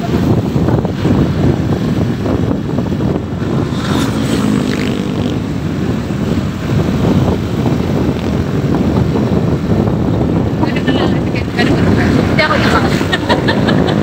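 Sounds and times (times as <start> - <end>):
motorcycle engine running: 0.0 - 14.0
wind rushing past microphone: 0.0 - 14.0.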